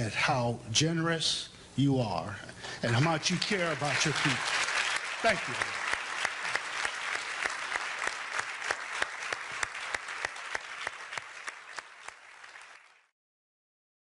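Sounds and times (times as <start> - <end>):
audience applauding: 2.8 - 13.1.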